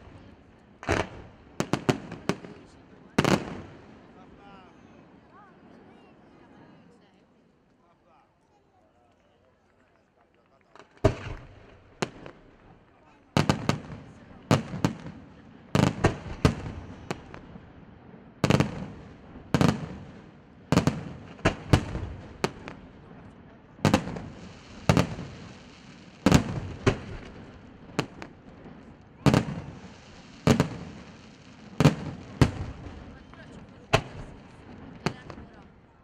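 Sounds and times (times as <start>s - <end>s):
firework shells bursting: 18.4s - 22.9s, 23.8s - 33.2s.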